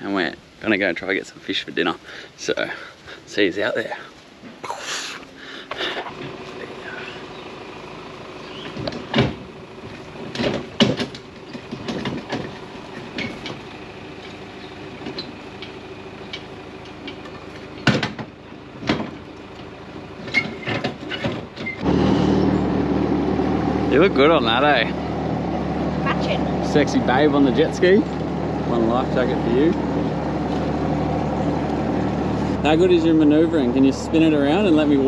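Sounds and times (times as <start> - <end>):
jet ski engine idling: 5.3 - 20.7, 21.8 - 35.0
metal clanks and knocks: 8.6 - 14.4, 15.0 - 21.9.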